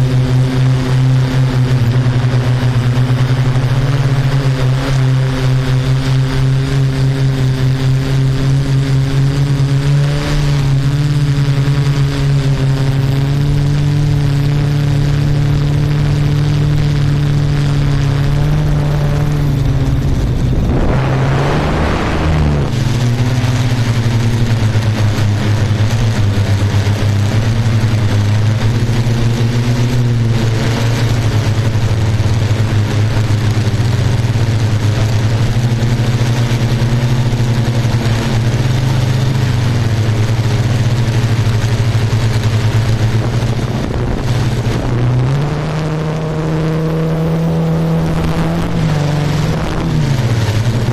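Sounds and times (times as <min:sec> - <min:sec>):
drone motors humming: 0:00.0 - 0:50.9
short rush of noise: 0:18.0 - 0:23.9.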